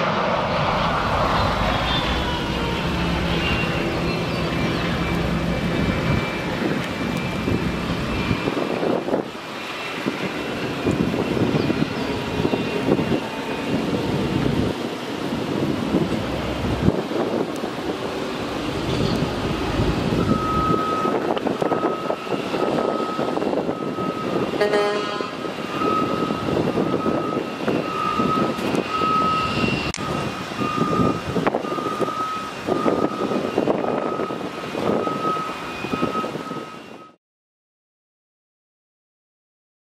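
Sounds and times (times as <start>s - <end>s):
broad rumble: 0.0s - 9.4s, 13.8s - 22.0s
jet engines whining: 0.0s - 37.1s
short beep: 20.2s - 22.1s.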